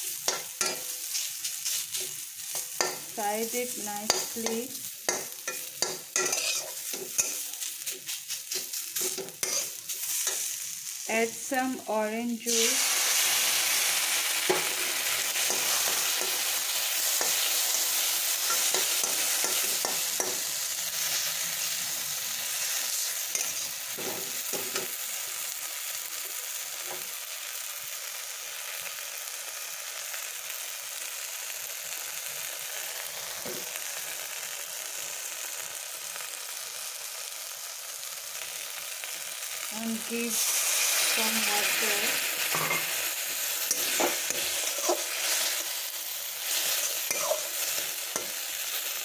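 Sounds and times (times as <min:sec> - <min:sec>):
food sizzling in hot oil: 0:00.0 - 0:49.0
spatula scraping and tapping pan: 0:00.3 - 0:03.1, 0:04.0 - 0:10.5, 0:46.6 - 0:48.4.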